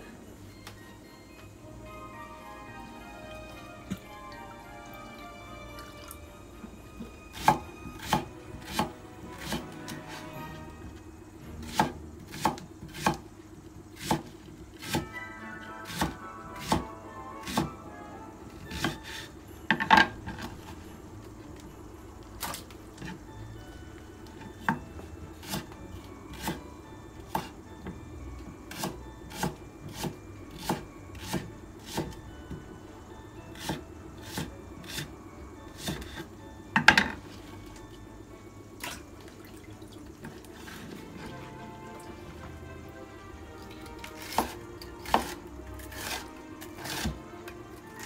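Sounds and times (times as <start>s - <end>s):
light background music: 0.0s - 48.0s
knife chopping on wooden board: 7.4s - 9.7s, 11.7s - 13.2s, 14.0s - 15.1s, 15.9s - 17.7s, 18.7s - 19.2s, 28.7s - 32.2s, 44.2s - 46.2s, 46.8s - 47.2s.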